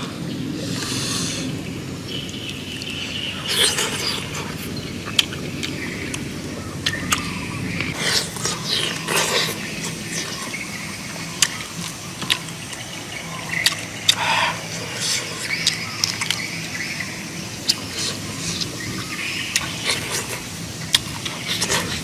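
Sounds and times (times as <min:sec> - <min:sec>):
chewing and lip smacks: 0:02.1 - 0:10.7, 0:11.3 - 0:12.9, 0:13.5 - 0:16.5, 0:17.6 - 0:22.0.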